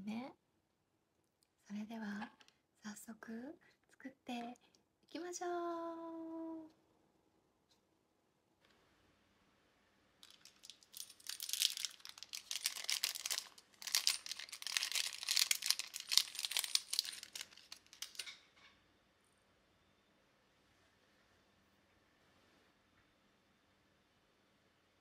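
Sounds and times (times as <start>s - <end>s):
plastic bag crinkling: 10.2s - 18.4s.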